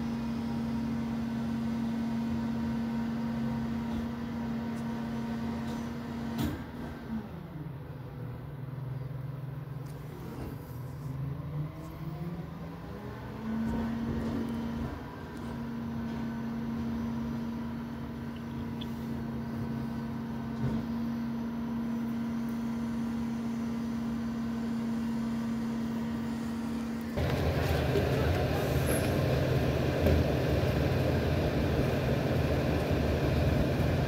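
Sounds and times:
diesel truck engine idling and revving: 0.0 - 34.0.

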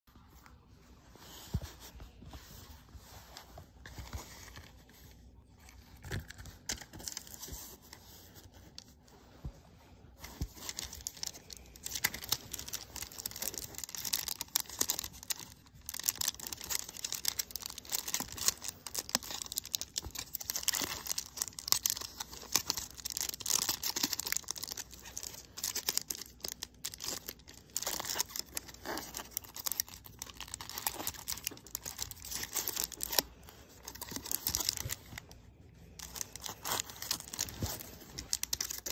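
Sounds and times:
foil wrapper crinkling and tearing: 10.3 - 38.9.

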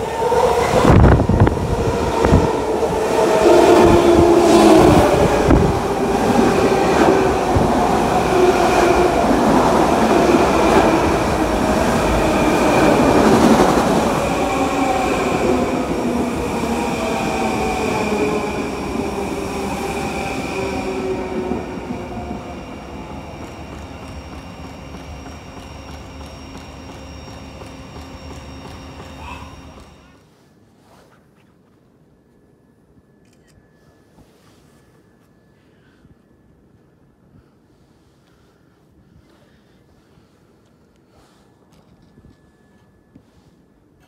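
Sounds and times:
electric train passing: 0.0 - 30.2
train wheels rumbling on rails: 0.0 - 30.2
train whine: 0.0 - 30.4, 39.9 - 44.0.

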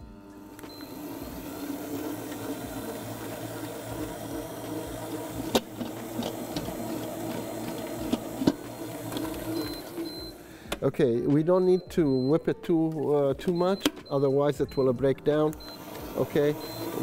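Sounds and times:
stand mixer motor running: 0.0 - 10.4, 15.6 - 17.0.

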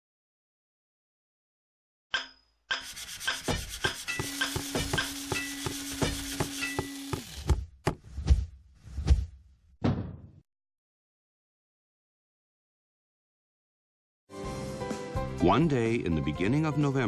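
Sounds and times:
rapid scraping strokes: 2.7 - 7.6.

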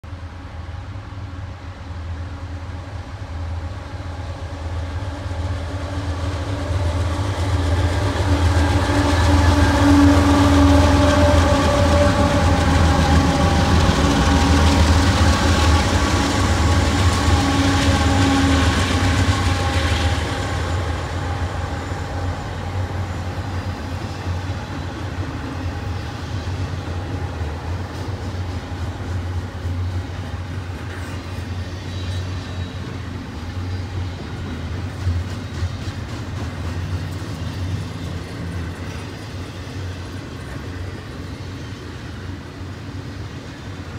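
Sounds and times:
diesel locomotives passing: 0.0 - 43.9
freight cars rumbling over rails: 4.4 - 43.9.

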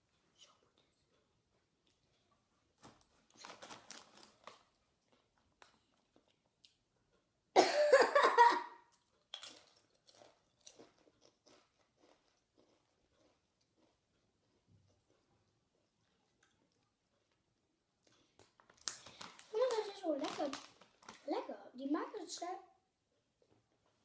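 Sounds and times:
chewing crunchy chips: 0.1 - 7.3, 8.8 - 17.4, 18.0 - 21.3.

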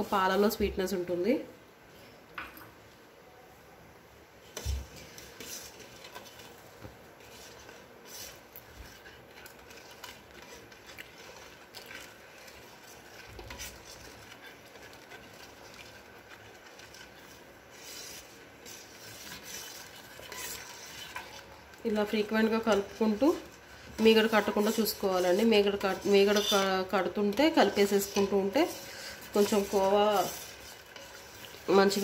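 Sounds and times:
spoon stirring milk in pot: 4.4 - 32.0
spoon scraping and clicking on pot: 19.2 - 21.6, 22.6 - 31.7.

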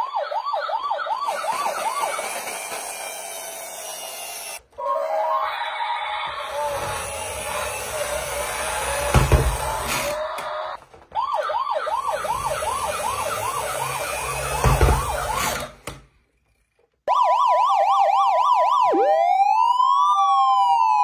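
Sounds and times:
two-tone siren yelp and wail: 0.0 - 2.6, 10.1 - 15.6, 17.1 - 21.0
toy siren whooping: 0.0 - 15.6, 17.0 - 21.0.

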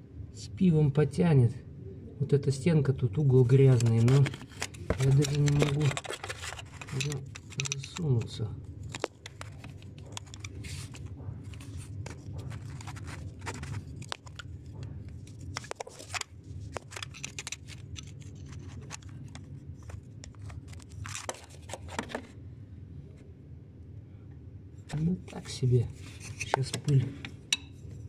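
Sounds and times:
steady low hum: 0.0 - 28.0
tool scraping and clicking metal: 3.7 - 10.6.

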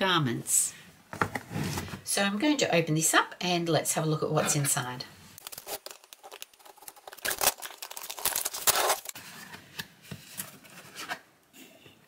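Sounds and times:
cardboard scraping and rustling: 5.4 - 11.2.

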